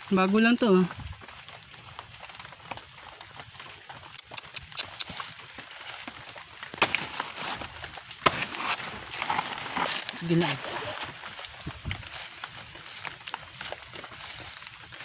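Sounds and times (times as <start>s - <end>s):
leaves rustling pushed by hand: 5.2s - 15.0s.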